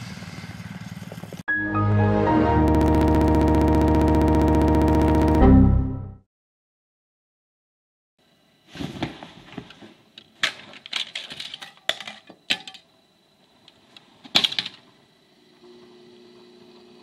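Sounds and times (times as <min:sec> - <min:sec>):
plastic clicks and clatters: 0:10.4 - 0:12.8.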